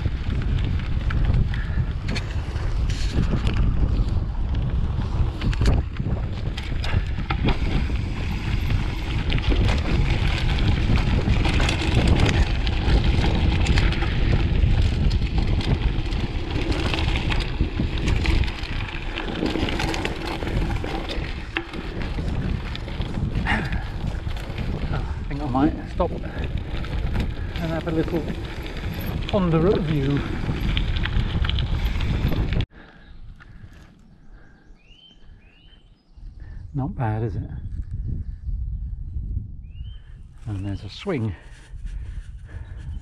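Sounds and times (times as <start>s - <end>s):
bike rattling and clicking: 0.0s - 35.7s
bike tyres rolling on dirt: 0.0s - 43.0s
wind buffeting microphone: 0.0s - 43.0s.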